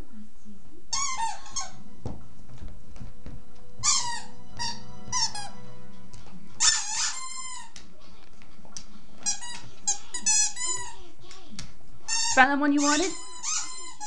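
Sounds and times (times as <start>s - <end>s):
squeaky dog toy squeaking: 0.9s - 1.8s, 3.8s - 5.6s, 6.6s - 7.8s, 9.2s - 11.0s, 12.1s - 14.0s.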